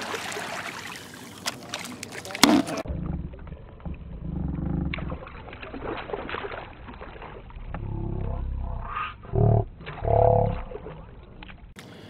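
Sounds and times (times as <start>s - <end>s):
fish splashing at water surface: 0.0s - 3.8s, 4.9s - 9.1s, 9.7s - 11.8s
low rumbling: 2.6s - 11.8s.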